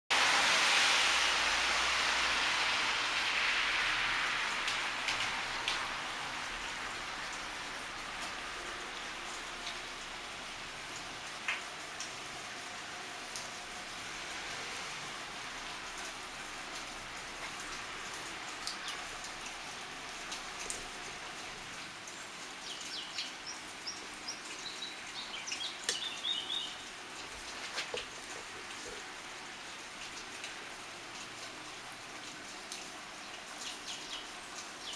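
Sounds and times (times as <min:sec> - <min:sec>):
car driving past on wet street: 0:00.1 - 0:10.8, 0:12.0 - 0:21.9
rain hiss: 0:00.1 - 0:34.9
single raindrops striking: 0:24.4 - 0:29.0
drops ticking on a surface: 0:25.8 - 0:26.3.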